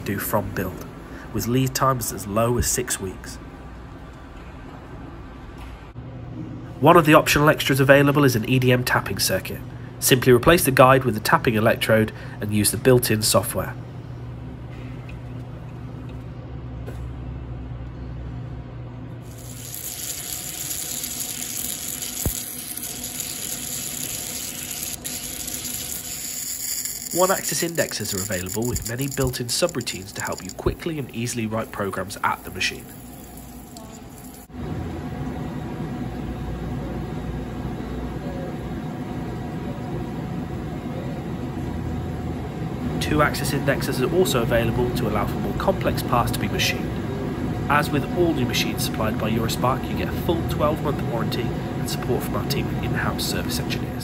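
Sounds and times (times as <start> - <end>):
low machine hum: 0.0 - 54.0
hiss and sizzle of spark erosion: 19.3 - 28.1
drilling machine humming: 19.3 - 34.5.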